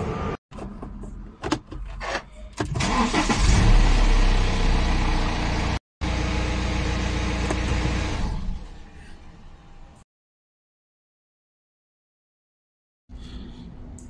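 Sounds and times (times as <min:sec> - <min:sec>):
diesel engine starting and idling: 0:02.6 - 0:08.9.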